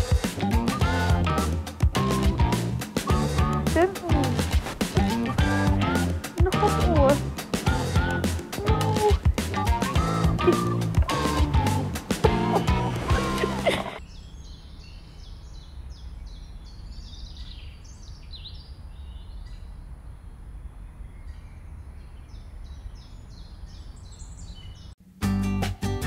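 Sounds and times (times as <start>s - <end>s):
background music: 0.0s - 14.0s, 25.0s - 26.0s
small birds chirping: 13.9s - 25.0s.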